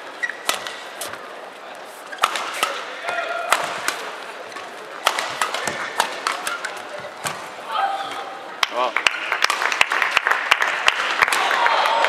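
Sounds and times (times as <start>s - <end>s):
shoes squeaking on court: 0.0s - 8.2s
rackets striking shuttlecock: 0.3s - 1.2s, 2.1s - 4.2s, 5.0s - 7.5s.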